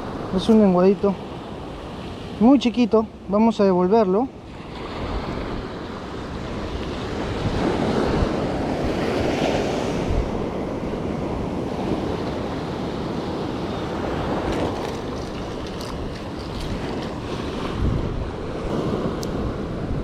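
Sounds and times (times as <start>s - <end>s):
ocean surf on sandy beach: 0.0s - 20.0s
wind buffeting microphone: 4.7s - 20.0s.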